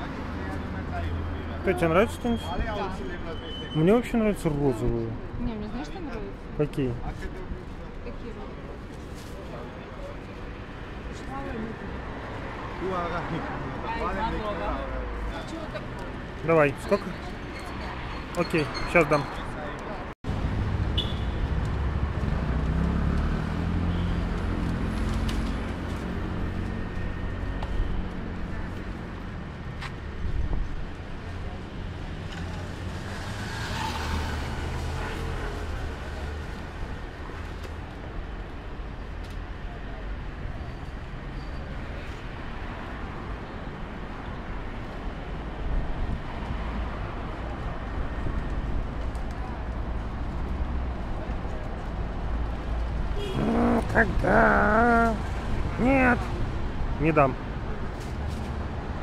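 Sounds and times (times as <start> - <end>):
steady traffic noise: 0.0 - 59.0
car engine passing: 21.7 - 24.0, 33.0 - 35.4.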